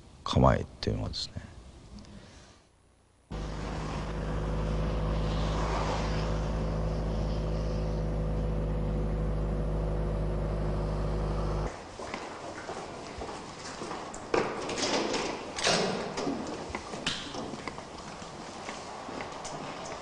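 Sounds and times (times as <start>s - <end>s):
vehicle engine humming: 3.3s - 11.7s.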